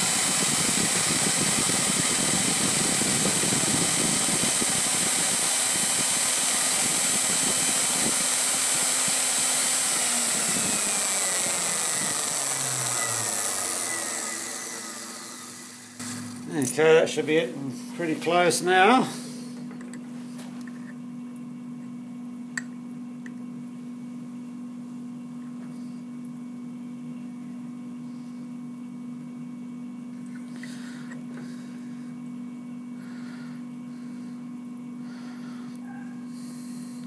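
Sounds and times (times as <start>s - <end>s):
electric motor hum: 0.0s - 19.6s.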